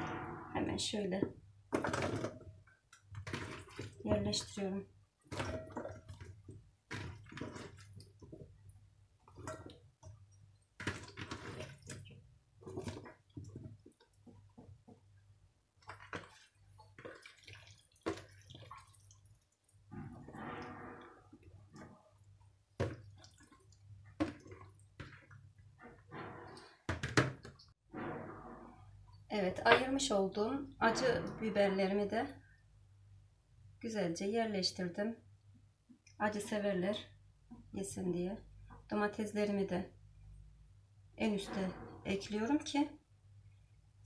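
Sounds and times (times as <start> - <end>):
wet squelching of vegetables: 1.9 - 25.6.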